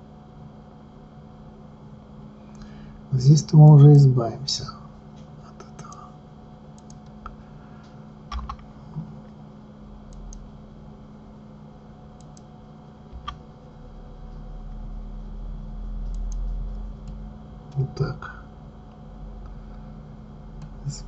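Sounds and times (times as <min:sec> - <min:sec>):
steady low hum: 0:00.0 - 0:21.0
computer mouse clicks: 0:05.8 - 0:06.1, 0:06.7 - 0:07.4, 0:08.3 - 0:08.7, 0:10.1 - 0:10.5, 0:12.2 - 0:12.5, 0:13.1 - 0:13.4, 0:16.0 - 0:17.8
keyboard clicks: 0:06.8 - 0:07.2, 0:08.3 - 0:08.7, 0:13.1 - 0:13.4.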